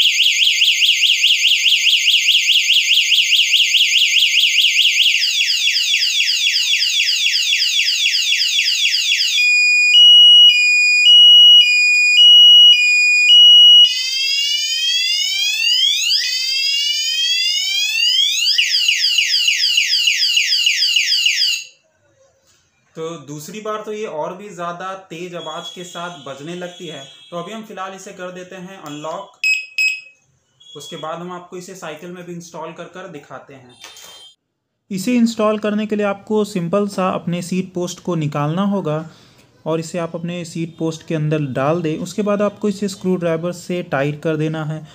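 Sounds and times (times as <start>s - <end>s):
bicycle alarm electronic siren: 0.0s - 21.8s, 29.4s - 31.0s.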